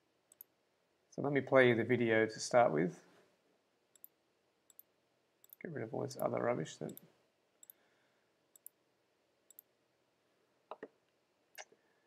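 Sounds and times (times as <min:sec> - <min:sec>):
computer mouse clicks: 0:00.3 - 0:00.5, 0:03.9 - 0:05.6, 0:06.9 - 0:07.8, 0:08.5 - 0:08.8, 0:09.5 - 0:09.7.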